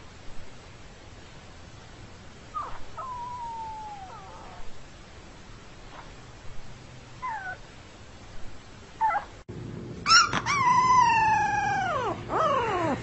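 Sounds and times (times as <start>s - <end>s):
puppy howling: 2.6s - 4.7s, 7.2s - 7.6s, 10.0s - 13.0s
puppy squeaking: 7.2s - 7.6s, 9.0s - 9.3s, 10.1s - 13.0s.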